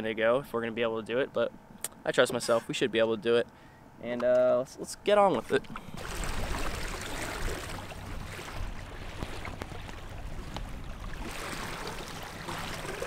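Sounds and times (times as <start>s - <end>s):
motorboat motor hum: 5.0s - 13.0s
water rushing along hull: 5.4s - 13.0s.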